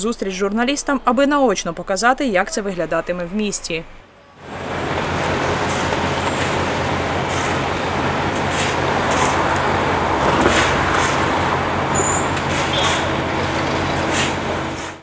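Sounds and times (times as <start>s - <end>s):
diesel engine running: 4.4s - 15.0s
shovels scraping asphalt: 4.8s - 15.0s.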